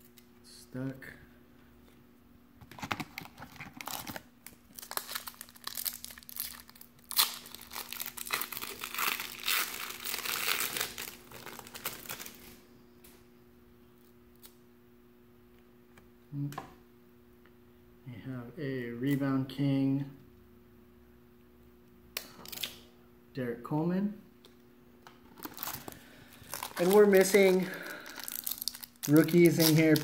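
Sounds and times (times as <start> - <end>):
wrapper torn and crinkled: 3.1 - 12.6, 25.3 - 30.0.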